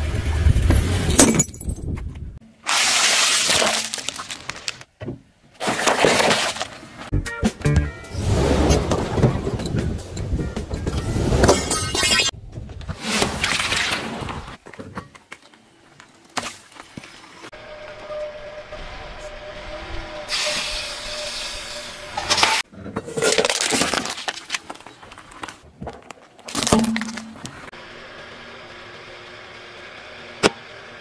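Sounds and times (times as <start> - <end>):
car tyre crushing objects: 23.0 - 27.7.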